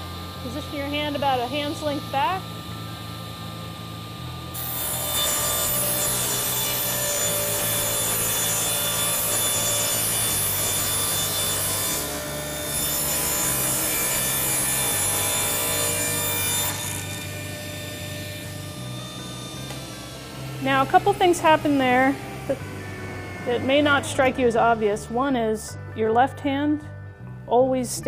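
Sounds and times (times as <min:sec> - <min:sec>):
saw motor spinning freely: 0:00.0 - 0:25.4
table saw cutting plywood: 0:04.0 - 0:25.1.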